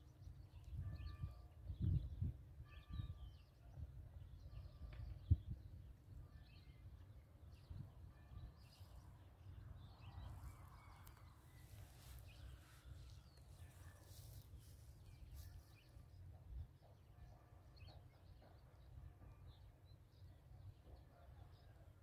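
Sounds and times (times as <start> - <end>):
wind rumble on microphone: 0.5 - 6.3.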